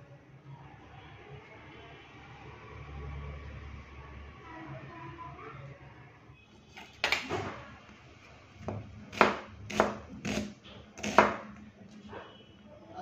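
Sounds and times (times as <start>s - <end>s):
knife striking cutting board: 8.7s - 11.5s.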